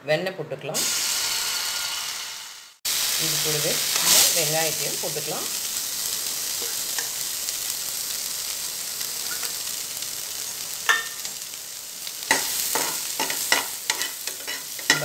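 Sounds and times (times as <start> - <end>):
onions sizzling in a frying pan: 0.8 - 15.0
spatula scraping and tapping pan: 12.3 - 15.0.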